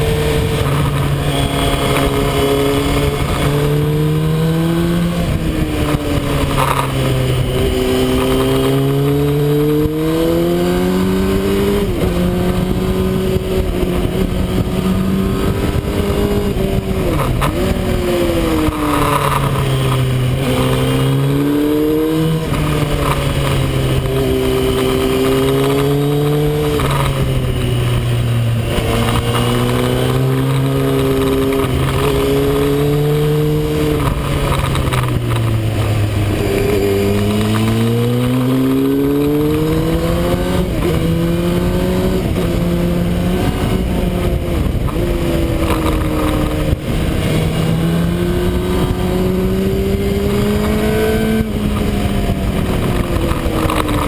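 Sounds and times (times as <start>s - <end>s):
motorcycle engine revving: 0.0s - 54.0s
wind noise: 0.0s - 54.0s.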